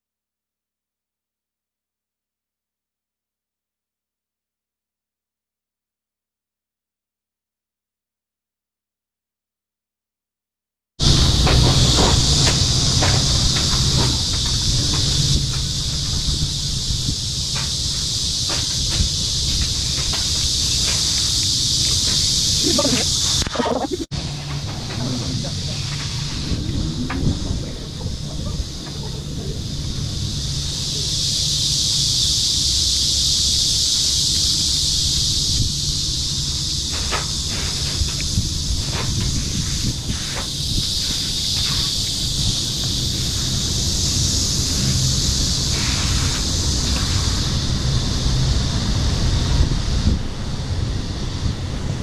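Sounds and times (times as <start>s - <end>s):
cicadas buzzing: 11.0s - 52.0s
low rumble: 11.0s - 52.0s
wind buffeting microphone: 11.0s - 52.0s.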